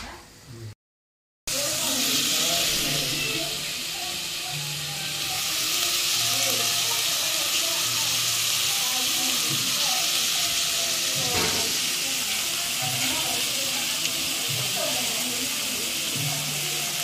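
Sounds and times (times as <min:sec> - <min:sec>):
food sizzling in a pot: 0:01.5 - 0:17.0.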